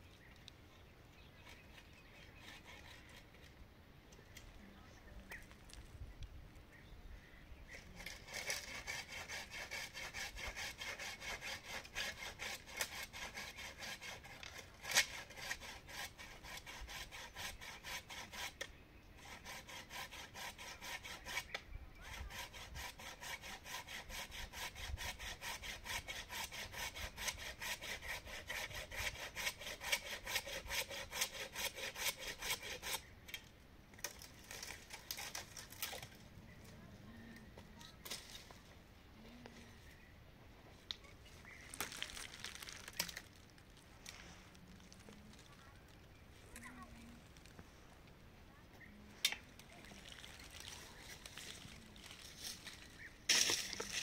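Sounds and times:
hand saw cutting a branch: 1.4 - 3.5, 7.8 - 33.1, 34.0 - 36.1, 49.3 - 54.0.

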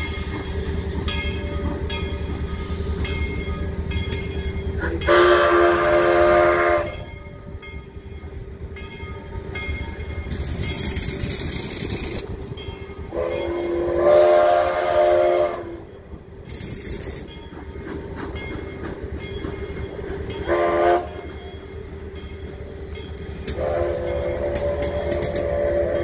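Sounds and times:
steam locomotive whistle: 4.8 - 7.1, 13.0 - 16.0, 20.4 - 21.3, 23.4 - 26.0.

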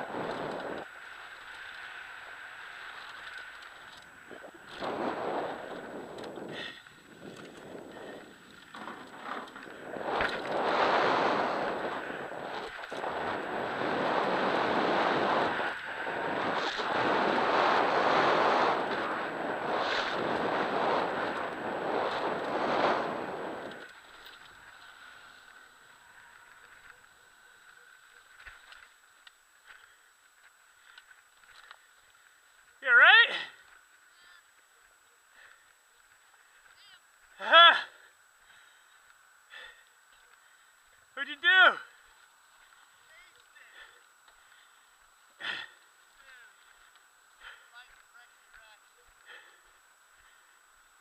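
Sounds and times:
bike tyres rolling on dirt: 0.0 - 51.0
wind on microphone: 4.2 - 23.9
bike clattering over bumps: 5.7 - 10.6.

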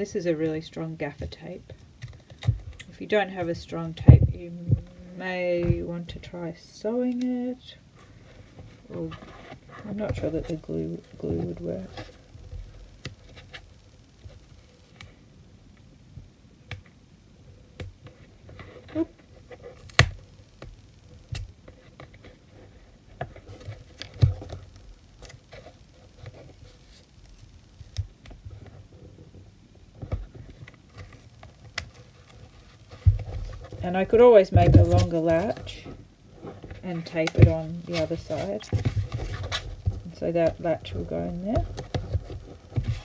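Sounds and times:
tape rustling and crinkling: 17.8 - 43.0.

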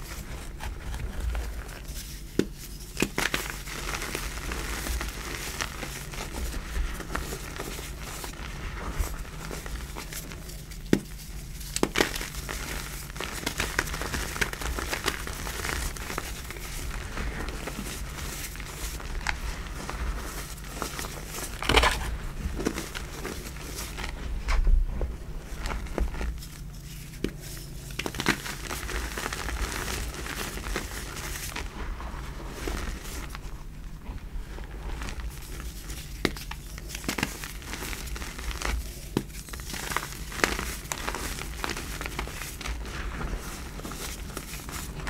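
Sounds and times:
hands crunching chalk: 0.0 - 24.4, 25.3 - 45.0.

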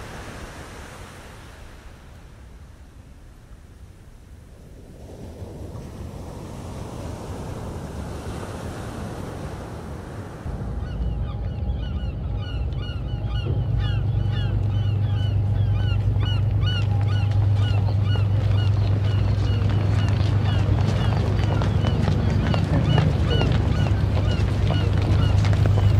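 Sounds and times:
surf: 0.0 - 25.9
wind: 0.0 - 25.9
steady low hum: 10.5 - 25.9
flock of birds calling: 10.6 - 25.9.

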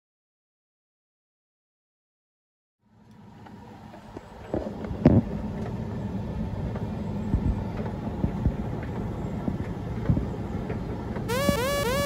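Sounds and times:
tumble dryer motor hum: 3.2 - 12.0.

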